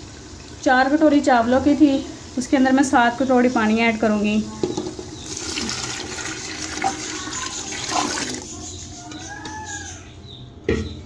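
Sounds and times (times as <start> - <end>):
water pouring into a pot: 5.0 - 8.5.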